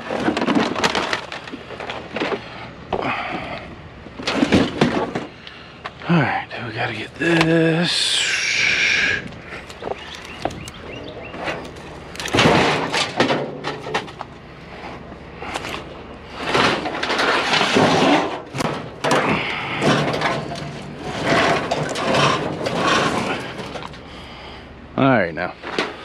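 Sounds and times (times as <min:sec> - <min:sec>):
chairs clattering and scraping: 0:15.5 - 0:24.0.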